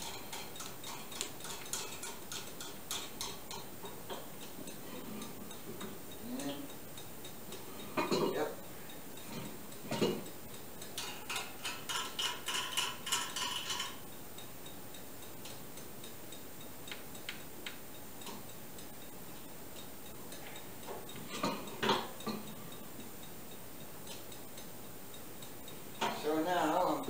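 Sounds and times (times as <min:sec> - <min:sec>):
metallic clicks of drill press: 0:10.9 - 0:14.0.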